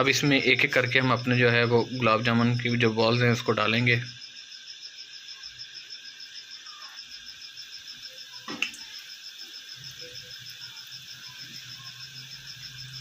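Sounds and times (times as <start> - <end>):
fast steady chirping: 0.0 - 13.0
oil sizzling in a pan: 5.4 - 13.0.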